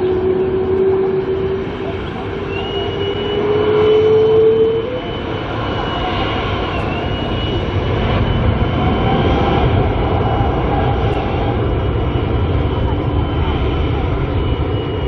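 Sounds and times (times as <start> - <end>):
low rising tone: 0.0 - 11.3
jet engines rumble and whine: 0.0 - 15.0.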